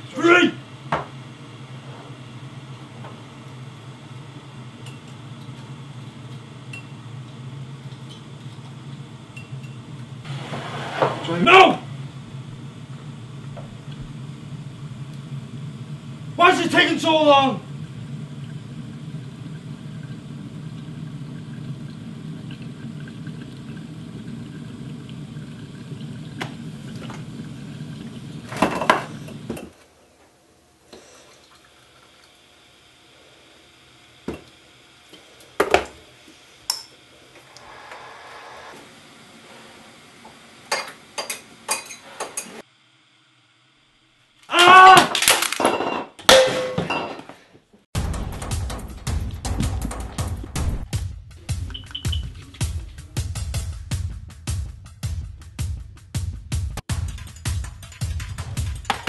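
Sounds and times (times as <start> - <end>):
electric kettle rumbling: 0.0 - 44.6
low hum: 11.8 - 16.4.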